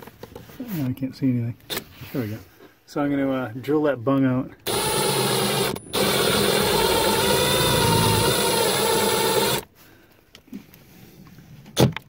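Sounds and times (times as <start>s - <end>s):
cordless drill boring wood: 4.6s - 9.7s.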